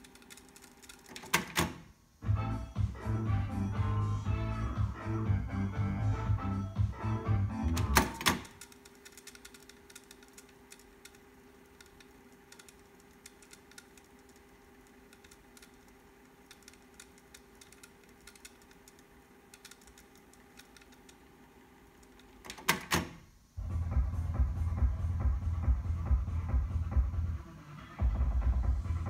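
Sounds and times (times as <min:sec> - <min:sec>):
music playing: 0:02.2 - 0:08.3, 0:23.6 - 0:29.0.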